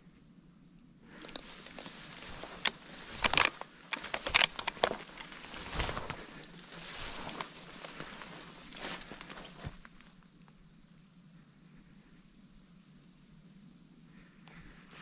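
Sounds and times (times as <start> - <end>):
footsteps through dry grass: 1.1 - 10.2
twigs crackling and snapping: 1.2 - 10.2.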